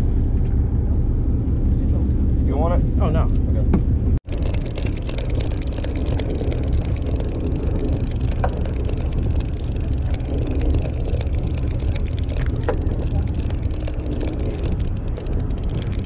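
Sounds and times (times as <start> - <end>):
boat and wind rumble: 0.0 - 16.0
fishing reel gears ticking: 4.2 - 16.0.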